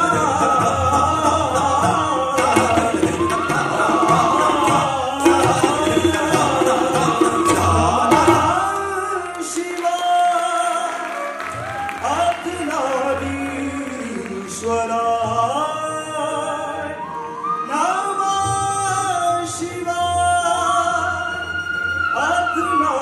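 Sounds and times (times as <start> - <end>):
flute melody: 0.0 - 13.0, 15.8 - 23.0
tabla playing: 0.0 - 14.6.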